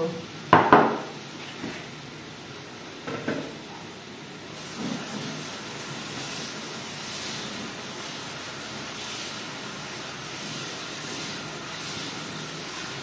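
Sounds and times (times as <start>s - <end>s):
tap water running into sieve: 4.5s - 13.0s.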